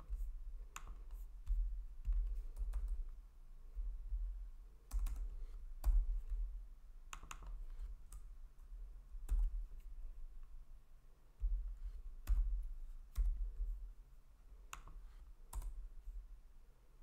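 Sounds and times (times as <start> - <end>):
low steady hum: 0.0 - 17.0
computer mouse clicks: 0.7 - 3.0, 7.1 - 8.3, 14.7 - 15.0
keyboard clicks: 7.1 - 8.3.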